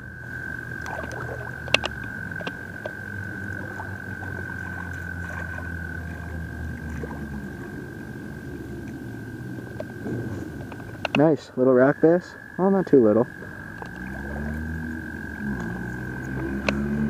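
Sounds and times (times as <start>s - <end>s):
low steady rumble: 0.0s - 17.0s
toad trilling: 0.0s - 17.0s
sharp clicks: 0.8s - 3.0s.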